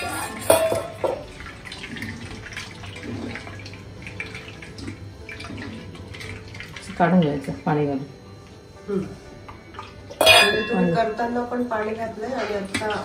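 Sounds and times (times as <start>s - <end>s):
steel pot clinking on counter: 0.0s - 1.3s, 10.2s - 11.0s
liquid dripping into pot: 0.5s - 7.6s.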